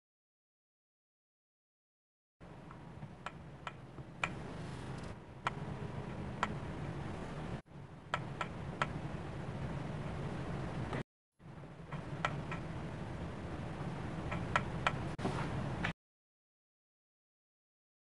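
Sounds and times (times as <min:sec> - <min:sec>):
low steady hum: 0:02.4 - 0:15.9.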